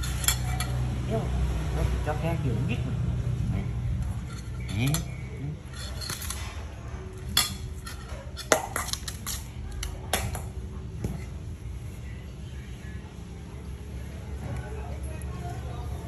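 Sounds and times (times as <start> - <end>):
metal spoon clinking in bowl: 0.0 - 0.9, 4.1 - 6.4, 7.3 - 10.4.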